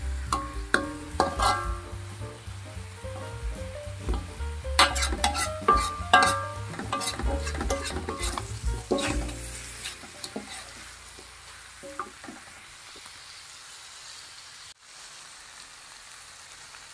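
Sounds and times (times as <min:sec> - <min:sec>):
sizzling: 0:00.0 - 0:16.9
spatula scraping metal wok: 0:00.2 - 0:01.9, 0:04.1 - 0:12.6.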